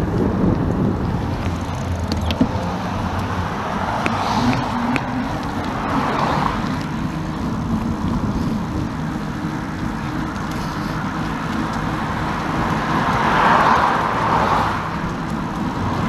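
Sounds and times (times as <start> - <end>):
cars passing: 0.0 - 16.0
low riding rumble: 0.0 - 16.0
wind on microphone: 0.0 - 16.0.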